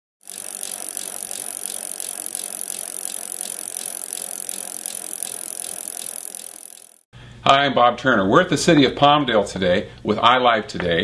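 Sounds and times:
bicycle freewheel hubs clicking: 0.2 - 7.1.

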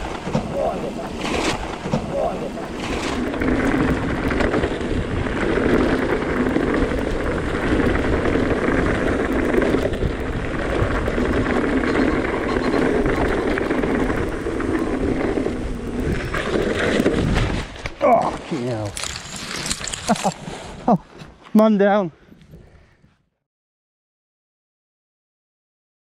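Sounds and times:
bike rattling and clicking: 0.0 - 20.6
wind buffeting microphone: 0.0 - 20.8
tyre noise on rough track: 0.0 - 23.2.

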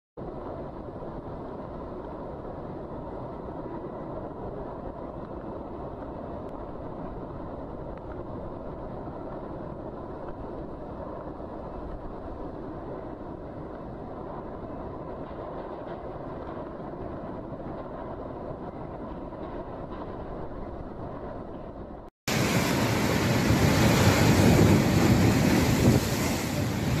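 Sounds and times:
wind: 0.2 - 27.0
heavy rain: 22.3 - 27.0.

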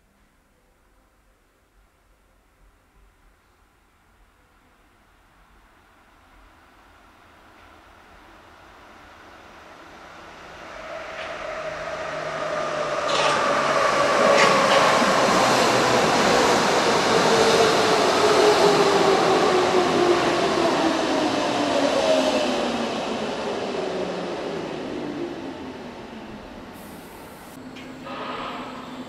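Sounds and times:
falling whine of train: 4.3 - 29.0
train arriving: 6.8 - 29.0.

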